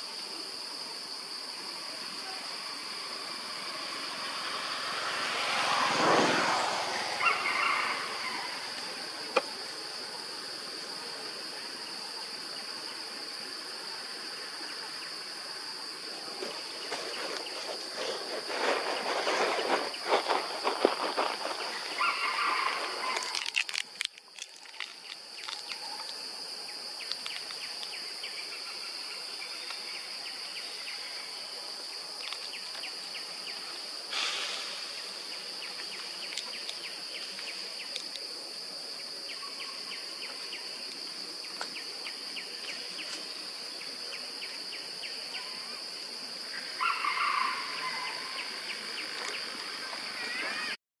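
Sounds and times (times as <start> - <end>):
high-pitched insect drone: 0.0 - 50.8
leaves and branches crackling: 16.4 - 26.2.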